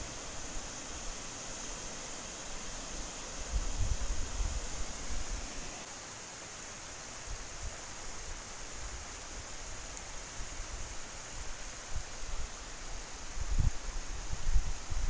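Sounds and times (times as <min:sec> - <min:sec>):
wind rumble on microphone: 0:00.0 - 0:05.8, 0:10.5 - 0:15.0
flowing water: 0:00.0 - 0:07.2.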